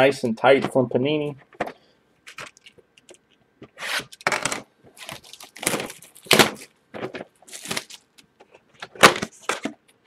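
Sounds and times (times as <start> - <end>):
plastic shrink-wrap tearing: 3.8 - 8.2.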